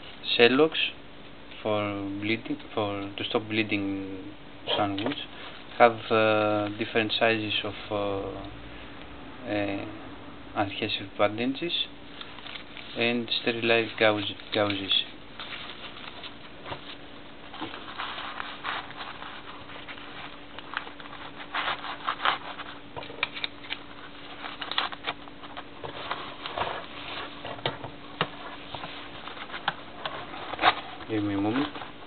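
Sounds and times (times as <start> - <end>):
faint steady hum: 0.0 - 32.0
paper packets rustling: 12.1 - 32.0.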